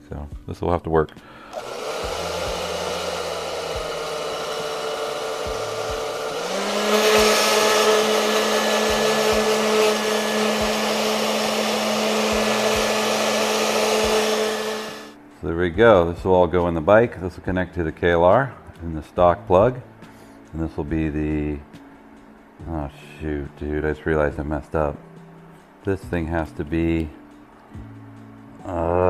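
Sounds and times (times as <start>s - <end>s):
hair dryer whirring: 1.5s - 15.2s.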